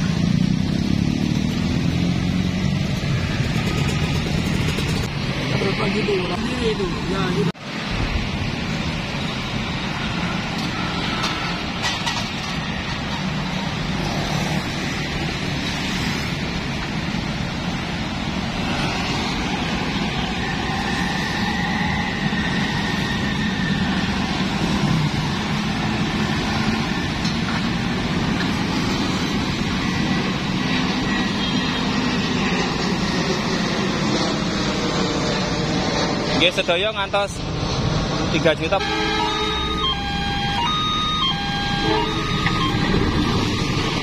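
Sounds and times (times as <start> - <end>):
motorbikes and cars passing: 0.0 - 44.0.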